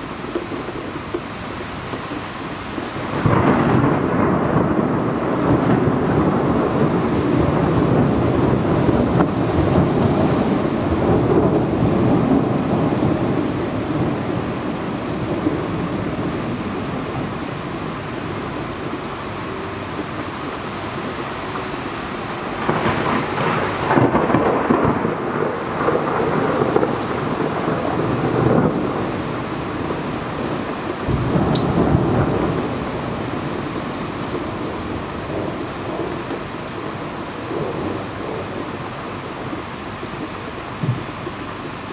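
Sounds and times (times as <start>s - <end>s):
steady rain: 0.0s - 41.9s
rolling thunder: 3.0s - 19.1s, 22.4s - 38.8s.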